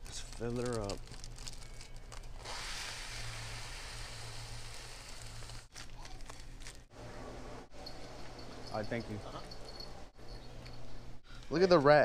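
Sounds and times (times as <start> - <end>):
plastic bag crinkling: 0.0 - 2.4
seed pouring hiss: 2.4 - 5.7.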